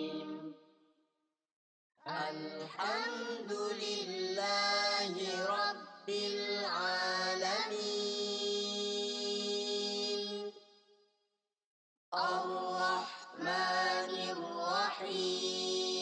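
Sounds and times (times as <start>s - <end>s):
boy reciting melodically: 2.1s - 10.4s, 12.2s - 16.0s.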